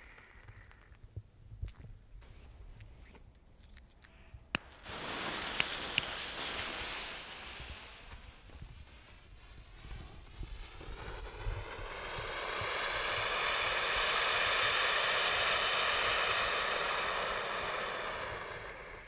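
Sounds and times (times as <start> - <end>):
sharp cracks: 4.5 - 19.0
firework fuse sputtering hiss: 4.6 - 19.0
fountain firework spraying sparks: 4.6 - 19.0.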